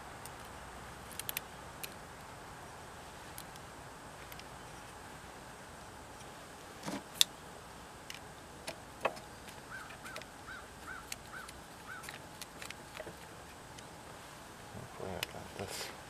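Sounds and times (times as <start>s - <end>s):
bird calling: 9.2s - 14.0s.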